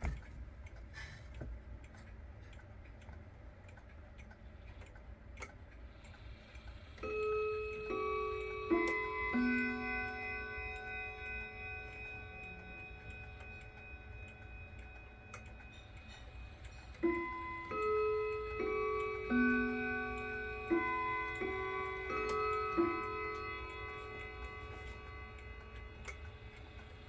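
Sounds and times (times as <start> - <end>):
clock ticking faintly: 0.0 - 27.0
wall clock chiming: 6.0 - 27.0.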